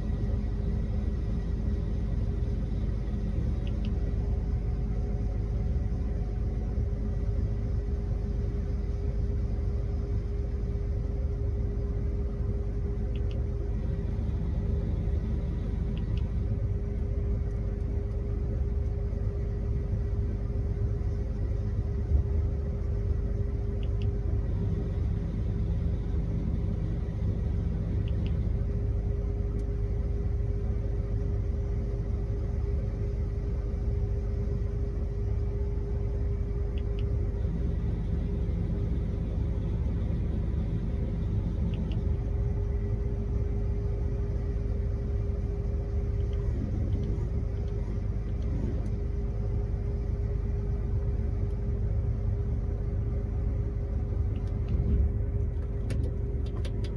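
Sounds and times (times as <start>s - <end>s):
combine harvester rumble: 0.0s - 56.9s
constant hum: 0.0s - 56.9s.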